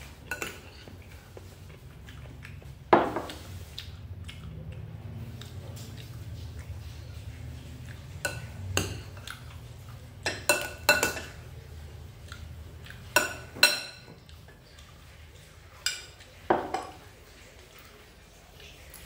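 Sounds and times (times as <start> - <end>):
spoon clinking on ceramic bowls: 0.3 - 0.9, 8.2 - 9.3, 10.2 - 11.4, 13.1 - 14.2.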